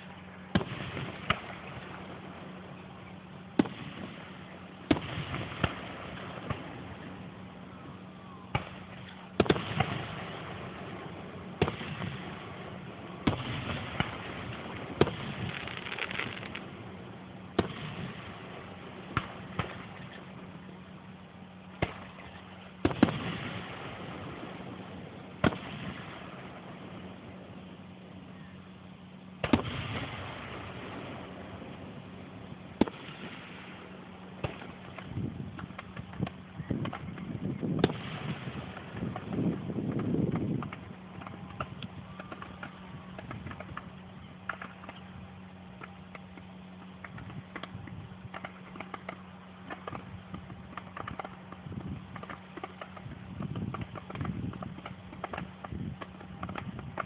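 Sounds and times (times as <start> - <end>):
firework shells bursting: 14.0 - 16.8.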